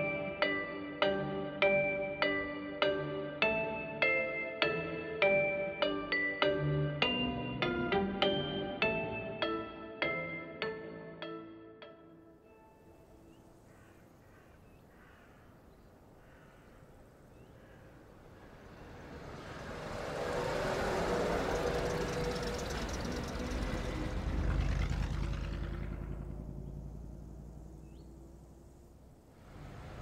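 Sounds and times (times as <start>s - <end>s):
bus driving past: 17.4s - 30.0s.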